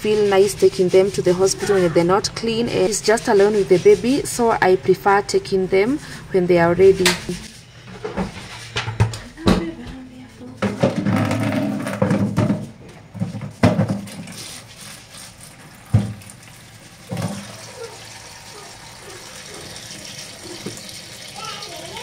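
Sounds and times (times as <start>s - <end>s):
tap water running into basin: 14.0s - 22.0s.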